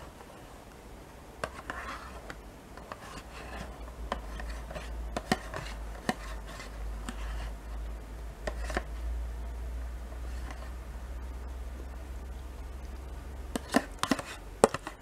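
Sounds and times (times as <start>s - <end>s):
spoon scraping plastic cup: 1.4s - 7.6s, 8.4s - 8.9s, 13.5s - 15.0s.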